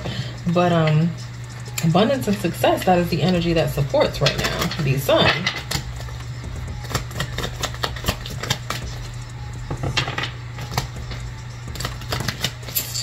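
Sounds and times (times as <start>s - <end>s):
faint background music: 0.0s - 13.0s
cards being shuffled: 5.6s - 9.1s, 10.6s - 12.8s.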